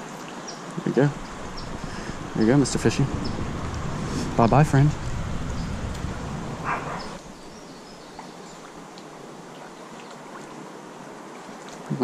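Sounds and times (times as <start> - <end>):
creek water flowing: 0.0 - 12.0
low rumbling handling noise: 1.0 - 8.5.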